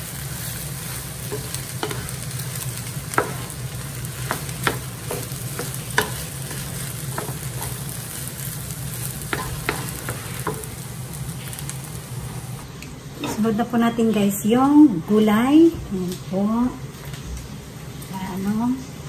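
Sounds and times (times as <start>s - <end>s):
frying sizzle: 0.0s - 12.7s
spatula scraping and knocking pan: 1.1s - 8.2s, 8.9s - 10.8s.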